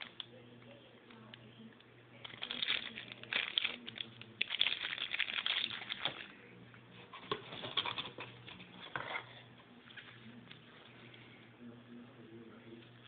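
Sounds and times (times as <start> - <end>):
plastic bag crinkling: 2.2 - 6.4.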